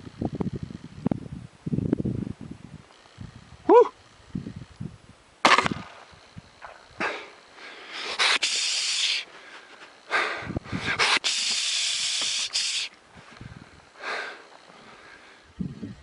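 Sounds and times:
loud hissing rushes: 5.5s - 16.0s.

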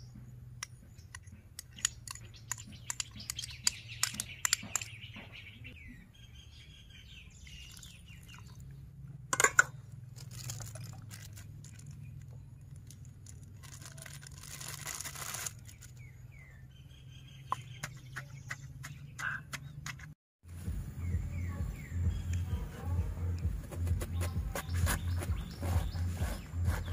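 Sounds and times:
spoon clinking on stone mortar: 9.4s - 9.7s
low steady hum: 20.5s - 26.9s
music: 20.5s - 26.9s.

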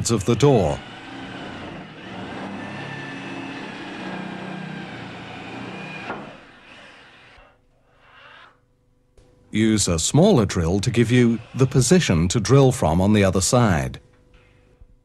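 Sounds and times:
electric drill boring wood: 0.0s - 7.6s, 10.5s - 12.3s.

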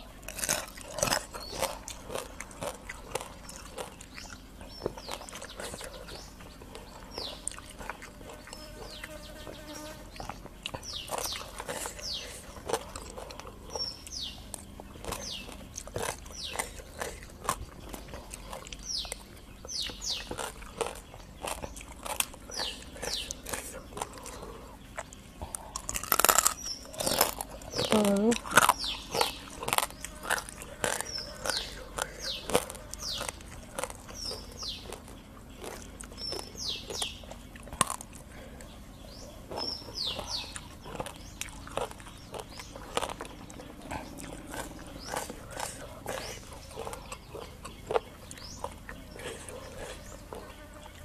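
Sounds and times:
crab shell crackling and chewing: 0.0s - 38.8s, 39.4s - 51.0s.

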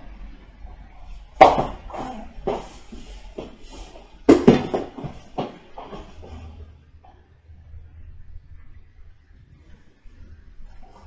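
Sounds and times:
knocks and shuffles on mat: 1.2s - 7.2s.

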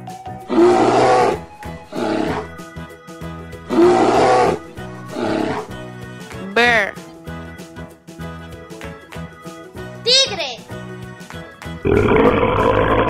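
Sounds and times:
light background music: 0.0s - 13.0s
bear growling: 0.5s - 2.7s, 3.7s - 6.0s, 11.8s - 13.0s.

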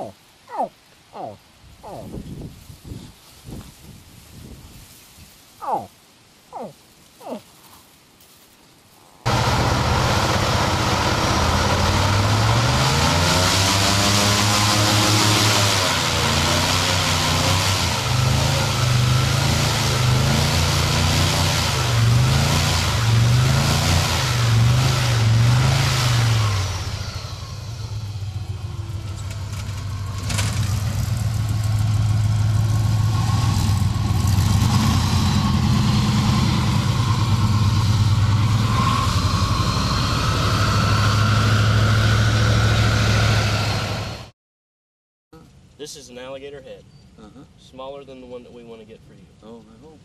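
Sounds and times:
engine revving: 9.3s - 44.3s.

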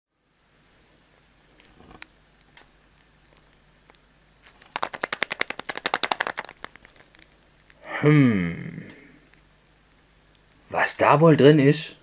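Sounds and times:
foil crackling: 1.6s - 7.8s.

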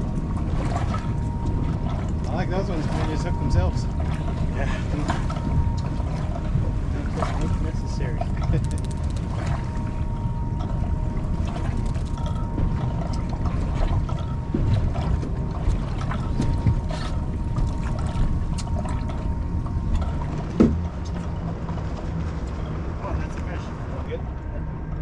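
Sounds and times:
water noise: 0.0s - 25.0s
wind: 0.0s - 25.0s.

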